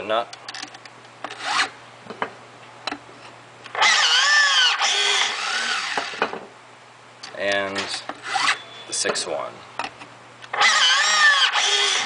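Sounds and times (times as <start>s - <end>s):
hydraulic tool motor whining: 3.7s - 6.2s, 8.2s - 8.6s, 10.5s - 12.0s.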